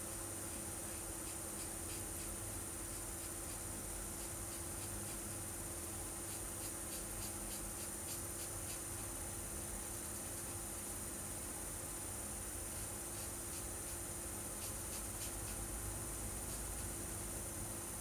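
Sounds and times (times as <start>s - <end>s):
background hum: 0.0s - 18.0s.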